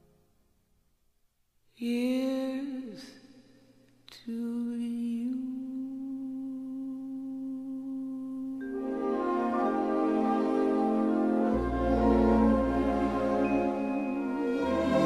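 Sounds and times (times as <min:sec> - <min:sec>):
woman singing jazz ballad: 0:01.8 - 0:03.2, 0:04.2 - 0:08.6.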